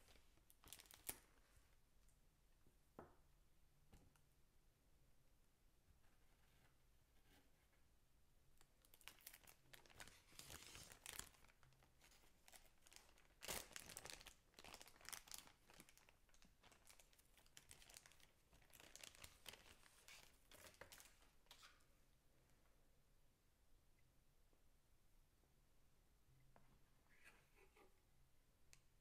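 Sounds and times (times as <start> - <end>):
plastic bag crinkling: 0.1 - 1.3, 8.9 - 21.6.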